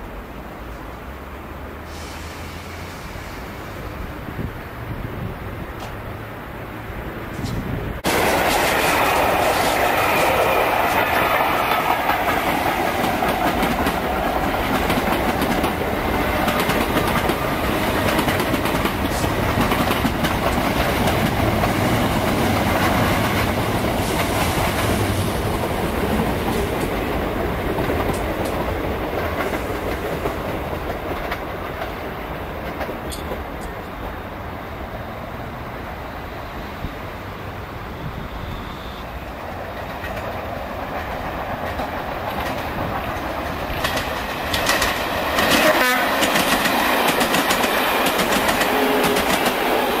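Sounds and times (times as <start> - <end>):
wheels clattering over rail joints: 39.7 - 50.0.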